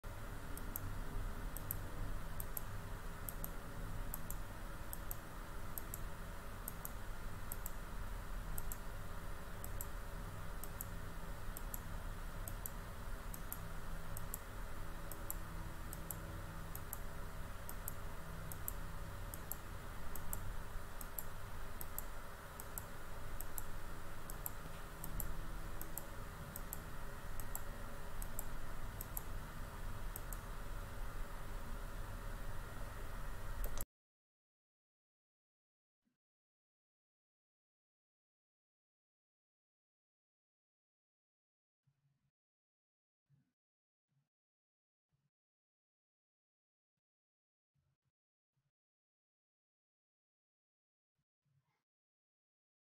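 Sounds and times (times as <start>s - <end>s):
steady low hum: 0.0s - 33.8s
computer mouse clicking: 0.5s - 0.9s, 1.5s - 7.9s, 8.5s - 8.9s, 9.6s - 29.5s, 30.1s - 30.6s, 33.6s - 33.8s.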